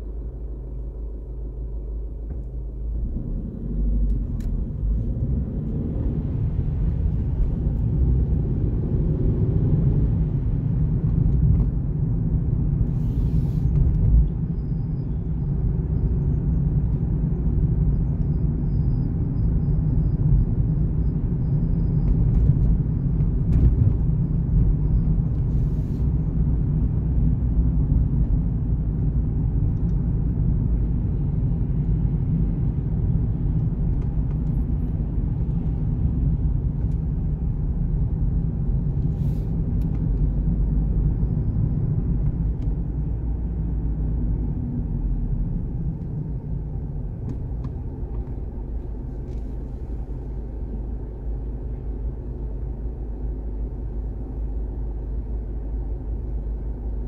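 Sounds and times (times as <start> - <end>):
car engine and tyre rumble: 0.0 - 57.0.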